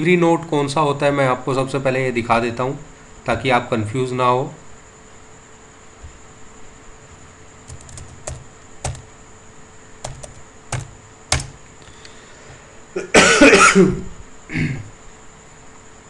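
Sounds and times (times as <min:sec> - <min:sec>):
keyboard keys clicking: 0:07.7 - 0:09.0, 0:10.0 - 0:11.6
loud cough: 0:13.0 - 0:14.9.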